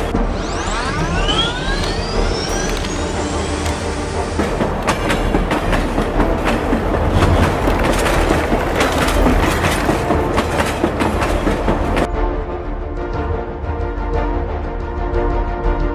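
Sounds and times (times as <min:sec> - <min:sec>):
train low rumble: 0:00.0 - 0:12.2
train wheels clattering: 0:03.5 - 0:12.1.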